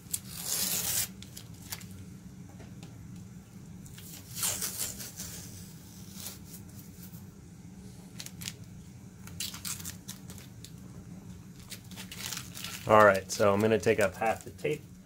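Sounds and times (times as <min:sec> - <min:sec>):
tape being peeled off: 0:00.0 - 0:02.0, 0:03.9 - 0:07.2, 0:08.1 - 0:10.8, 0:11.6 - 0:14.6
tape crinkling: 0:00.0 - 0:02.0, 0:03.9 - 0:05.4, 0:08.1 - 0:10.8, 0:11.5 - 0:14.8
steady low hum: 0:00.0 - 0:15.0.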